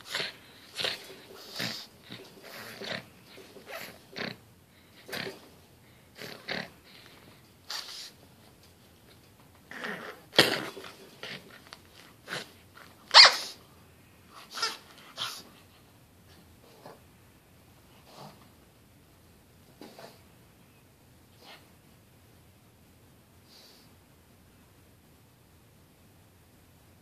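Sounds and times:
dog snorting and snuffling: 0:00.0 - 0:08.2, 0:09.7 - 0:13.6, 0:18.0 - 0:18.5, 0:19.8 - 0:20.2.

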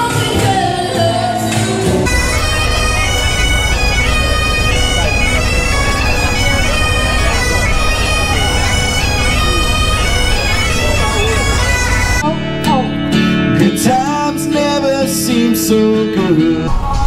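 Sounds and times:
bagpipes playing melody: 0:02.1 - 0:12.2
low rumble: 0:02.1 - 0:12.2.

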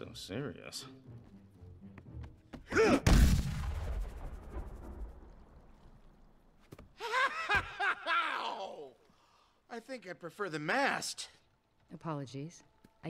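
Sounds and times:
cartoon punch with deep boom: 0:03.0 - 0:05.1.

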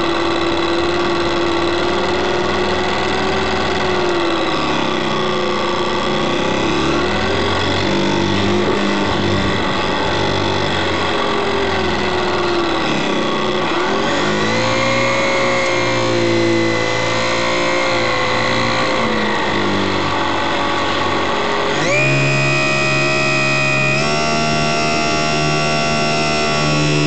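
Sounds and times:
electric motor and propeller whine: 0:00.0 - 0:27.0.

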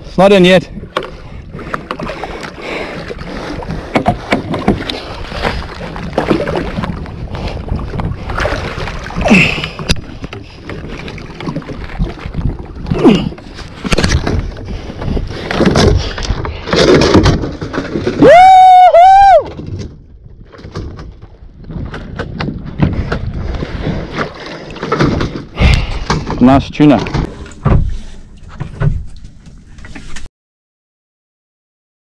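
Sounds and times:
water splashing: 0:00.0 - 0:18.3
wind on microphone: 0:03.0 - 0:16.7, 0:21.2 - 0:24.4
fish knocking against hull: 0:03.6 - 0:07.1, 0:07.7 - 0:18.2, 0:24.2 - 0:28.0.

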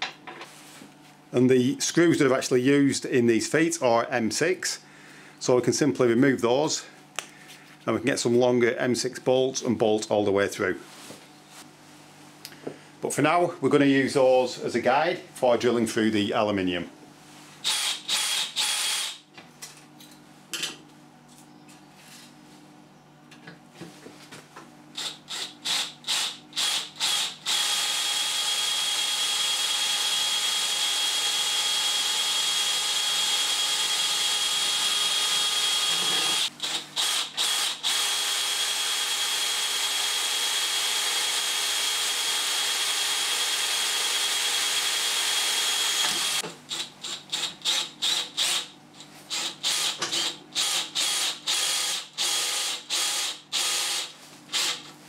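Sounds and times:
cordless drill drilling metal plate: 0:17.6 - 0:19.2, 0:25.0 - 0:48.7, 0:49.3 - 0:54.9.

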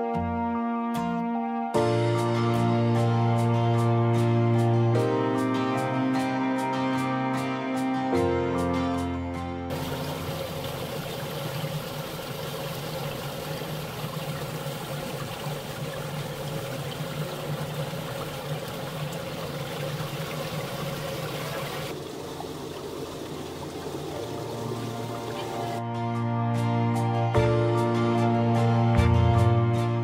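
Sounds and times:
stream trickling over stones: 0:09.7 - 0:25.8.

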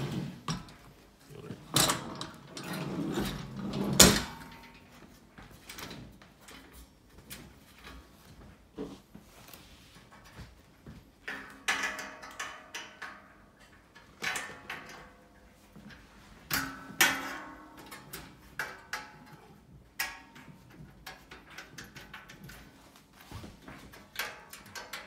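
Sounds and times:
knocks and clanks on metal table: 0:11.2 - 0:15.2, 0:15.9 - 0:22.7.

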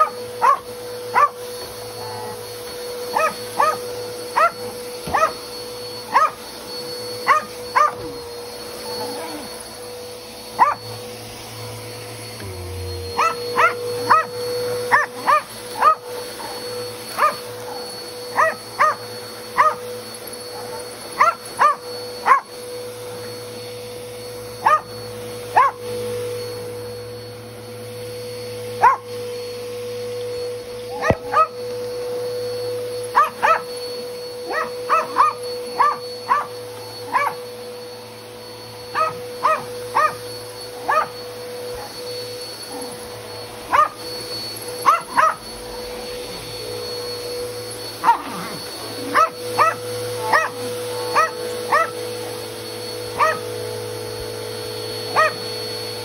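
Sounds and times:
small dog yipping: 0:00.0 - 0:02.4, 0:03.1 - 0:06.6, 0:07.2 - 0:09.6, 0:10.6 - 0:11.0, 0:13.2 - 0:16.6, 0:17.2 - 0:19.9, 0:20.5 - 0:22.5, 0:24.6 - 0:24.9, 0:25.5 - 0:25.8, 0:28.8 - 0:29.1, 0:30.9 - 0:31.6, 0:33.1 - 0:33.8, 0:34.4 - 0:37.4, 0:38.9 - 0:42.0, 0:43.7 - 0:44.1, 0:44.8 - 0:45.4, 0:48.0 - 0:52.2, 0:53.1 - 0:53.5, 0:55.1 - 0:55.4
vacuum cleaner motor humming: 0:00.0 - 0:56.0.

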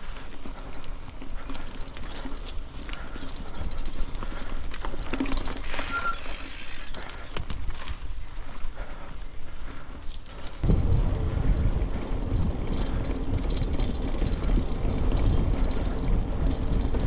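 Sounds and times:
bicycle knocks and rattles: 0:00.0 - 0:08.6, 0:10.3 - 0:17.0
tyres rumbling: 0:00.0 - 0:17.0
high squeak: 0:05.7 - 0:06.5
wind on microphone: 0:10.6 - 0:17.0.

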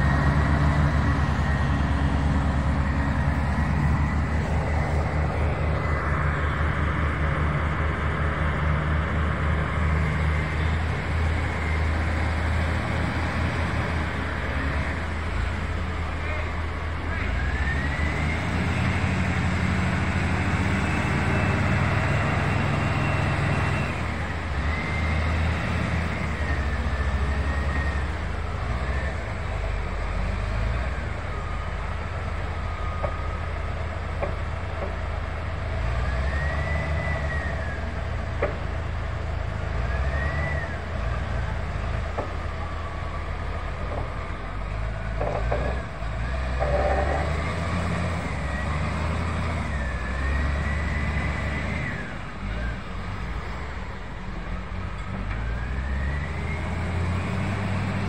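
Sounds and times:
heavy diesel machinery droning: 0:00.0 - 0:58.0.

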